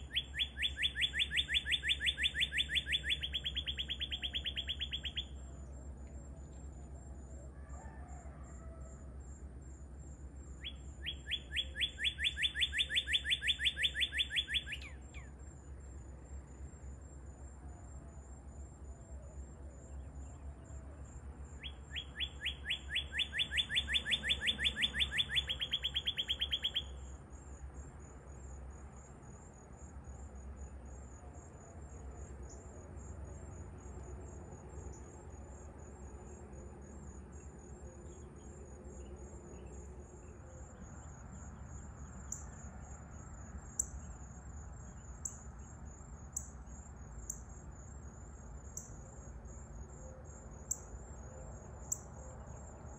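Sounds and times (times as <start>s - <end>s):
bird singing down-slurred whistles: 0.0s - 5.5s, 10.6s - 15.3s, 21.6s - 27.1s
high insect trill: 0.0s - 52.9s.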